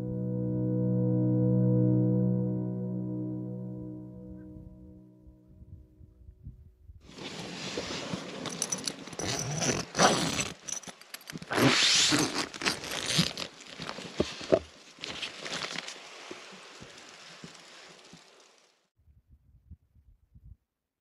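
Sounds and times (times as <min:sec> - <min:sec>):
tent zipper pulled open: 0:07.1 - 0:17.0
nylon fabric rustling: 0:07.1 - 0:18.7.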